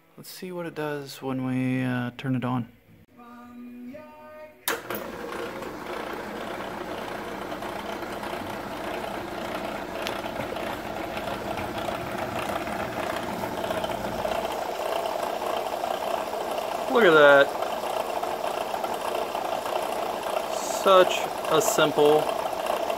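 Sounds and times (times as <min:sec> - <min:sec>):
machine switch click: 0:04.7 - 0:05.1
electric motor and gearbox running: 0:04.7 - 0:22.9.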